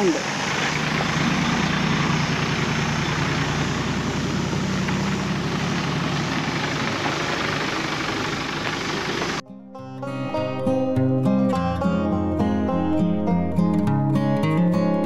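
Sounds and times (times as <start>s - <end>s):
off-road vehicle engines droning: 0.0s - 9.4s.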